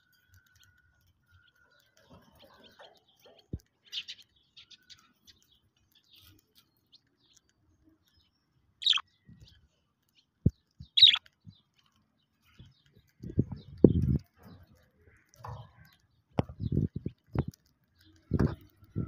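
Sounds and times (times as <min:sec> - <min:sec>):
budgerigars chirping: 0:08.8 - 0:09.0, 0:10.9 - 0:11.2.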